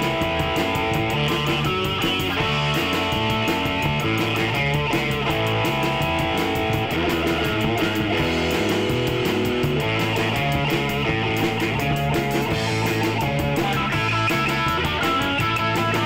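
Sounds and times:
bass guitar: 0.0s - 16.0s
drum kit with cymbals: 0.0s - 16.0s
electric guitar sustained notes: 0.0s - 16.0s.

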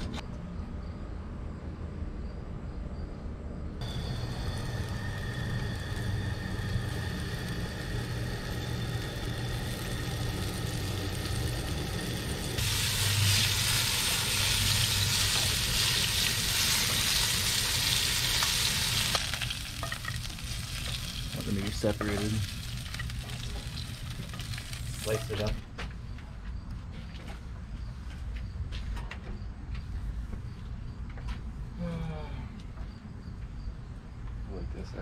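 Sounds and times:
low hum: 0.0s - 25.6s
fish frying in oil: 3.8s - 25.6s.

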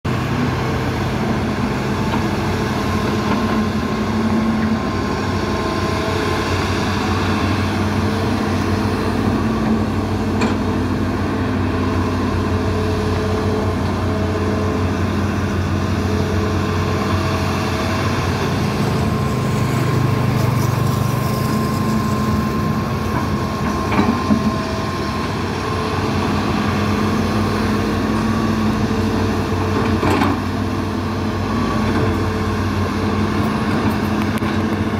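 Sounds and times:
excavator diesel engines droning: 0.1s - 34.9s
hydraulic whine: 0.1s - 34.9s.

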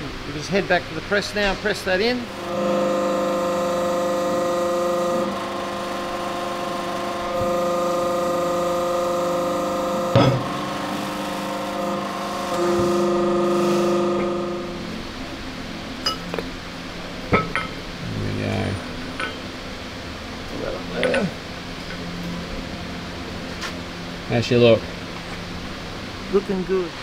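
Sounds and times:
hydraulic press humming: 2.1s - 17.8s
sharp knock: 10.2s - 10.5s.

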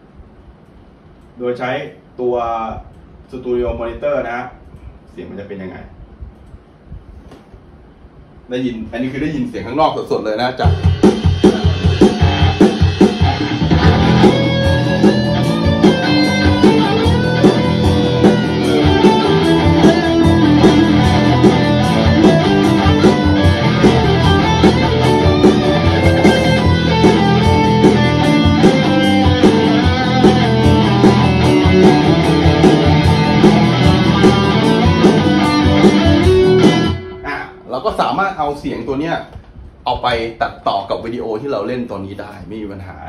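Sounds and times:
backing track through speakers: 8.5s - 43.0s
electric guitar playing: 10.7s - 37.7s.

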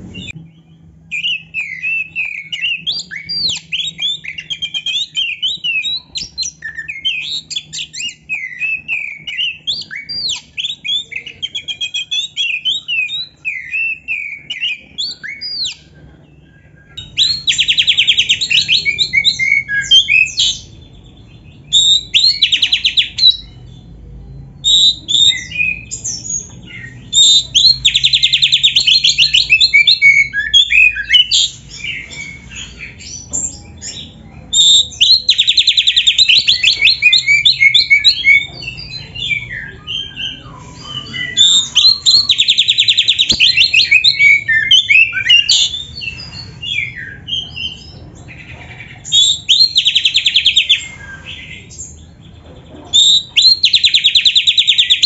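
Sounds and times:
bird song with whistled notes: 0.0s - 55.0s.

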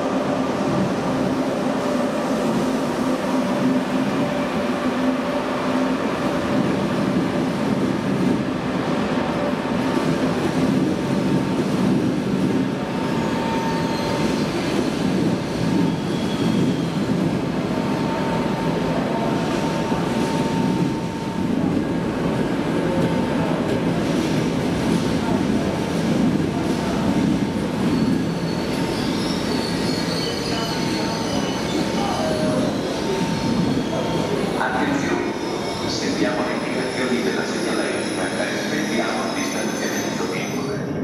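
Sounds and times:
train wheels rumbling on rails: 0.0s - 41.0s.

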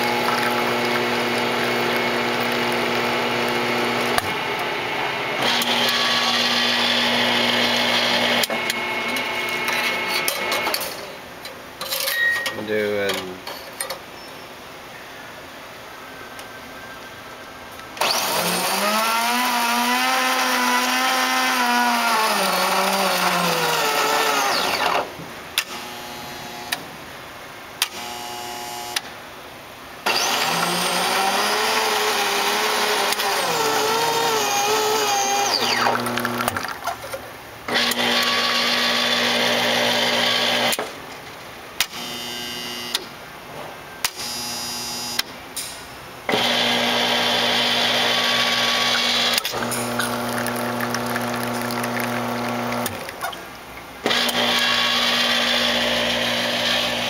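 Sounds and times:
espresso machine motor whine: 0.0s - 10.6s, 30.1s - 36.6s, 37.8s - 40.7s, 46.4s - 53.0s, 54.1s - 57.0s.

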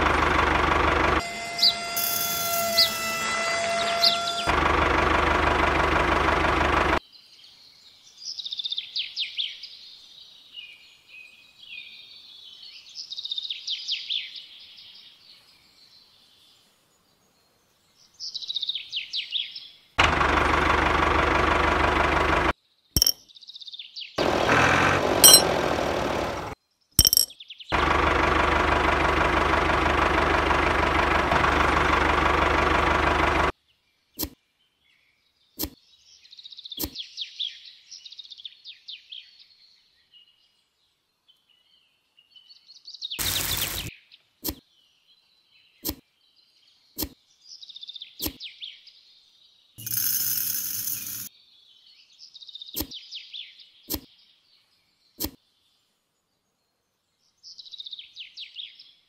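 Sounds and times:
birds chirping: 0.0s - 5.2s, 24.2s - 28.0s, 41.1s - 50.0s
toy electric motor humming: 1.2s - 4.6s, 43.2s - 43.9s, 49.8s - 51.3s.

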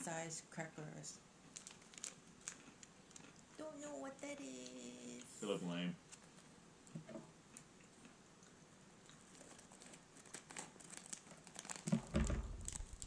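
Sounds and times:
plastic snack packet crinkling: 1.5s - 3.4s, 9.2s - 13.0s.

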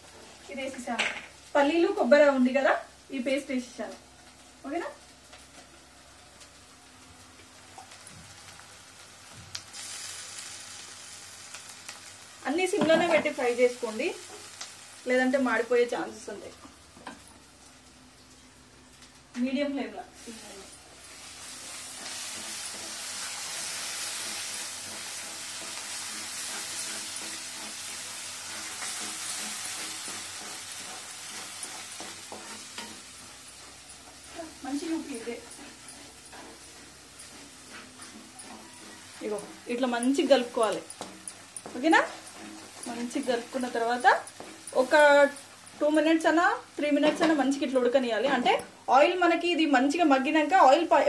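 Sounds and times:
paste sizzling in a pan: 6.5s - 16.4s, 20.2s - 50.9s
spatula stirring: 20.4s - 47.7s.

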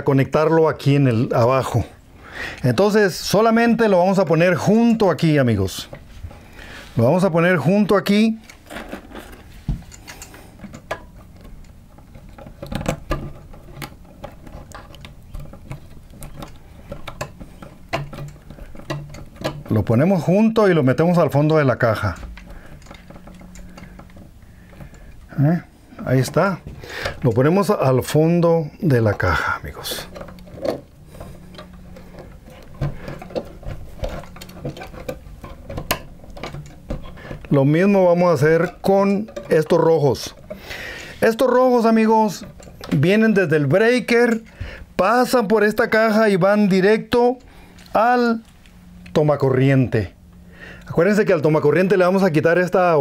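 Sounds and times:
faint steady hum: 0.0s - 53.0s
wires scraping against metal box: 0.8s - 52.7s.

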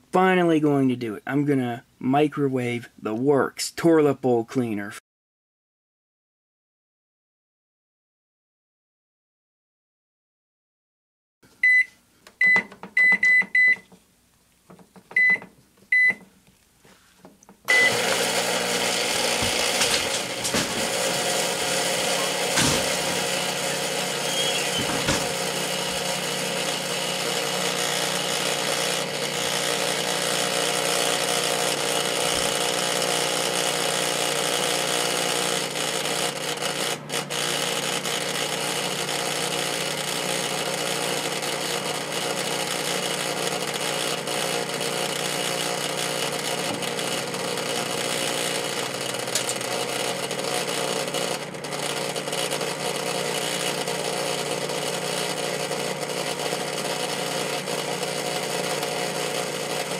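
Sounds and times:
microwave fan noise: 17.4s - 59.9s
microwave oven humming: 17.6s - 59.9s.

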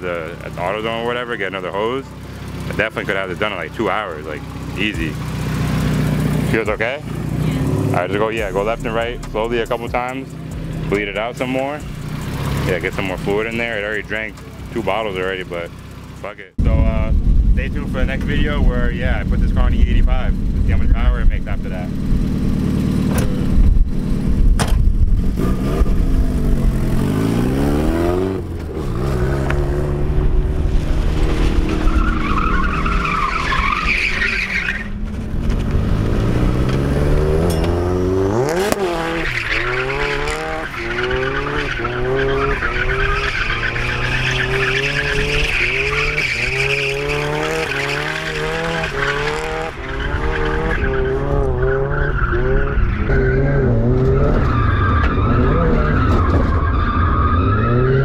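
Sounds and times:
car engine revving: 0.0s - 58.0s
tyre squeal: 31.5s - 35.2s, 37.4s - 58.0s.

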